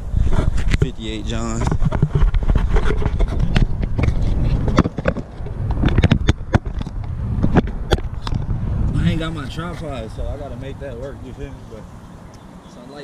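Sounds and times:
low rumble: 0.0 - 12.2
camera handling clicks and scrapes: 1.6 - 8.5.

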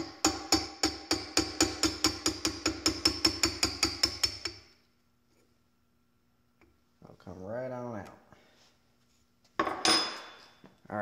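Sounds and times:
hammer tapping metal punch: 0.0 - 4.7.

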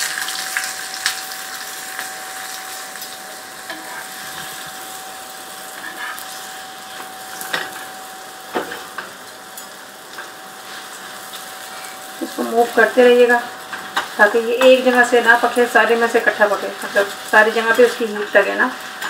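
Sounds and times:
flatbread sizzling on griddle: 0.0 - 19.0
metal spatula scraping griddle: 3.7 - 4.8, 5.7 - 7.9.

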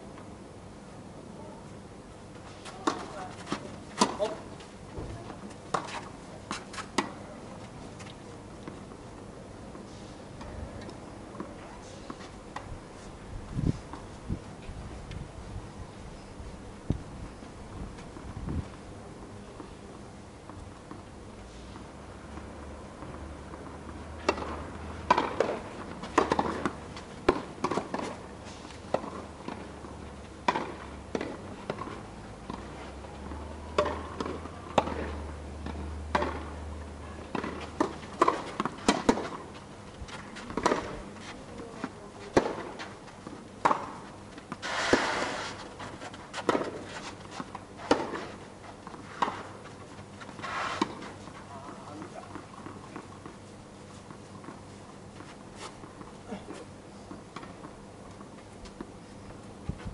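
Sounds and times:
tennis ball bouncing on court: 22.4 - 28.2, 28.9 - 36.6, 37.2 - 39.4, 40.1 - 41.0, 41.8 - 45.0
tennis racket hitting ball: 24.2 - 28.2, 32.5 - 36.5, 37.3 - 39.4, 40.1 - 41.0, 43.6 - 51.4.

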